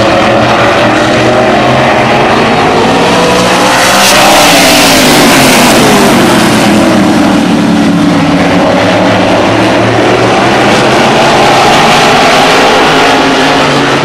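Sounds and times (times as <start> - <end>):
race cars passing at speed: 0.0 - 14.0.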